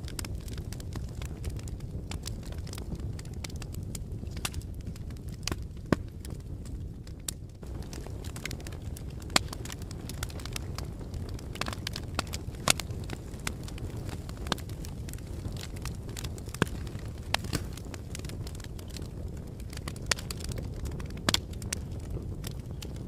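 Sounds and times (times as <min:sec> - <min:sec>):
fire crackling: 0:00.0 - 0:23.0
fire low rumble: 0:00.0 - 0:23.0
sharp pops of fire: 0:00.0 - 0:23.0.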